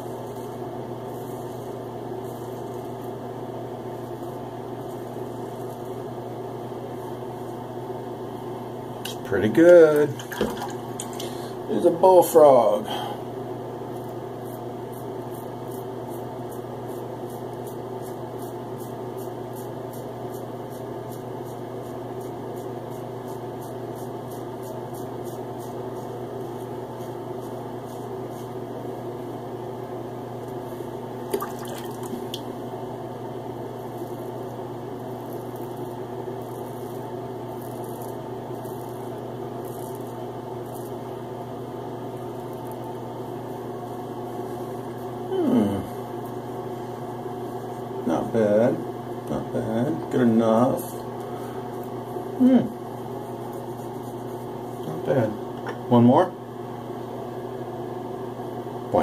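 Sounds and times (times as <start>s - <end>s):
steady hum: 0.0s - 59.0s
razor scraping stubble: 13.9s - 28.6s, 35.1s - 41.1s, 53.0s - 55.1s.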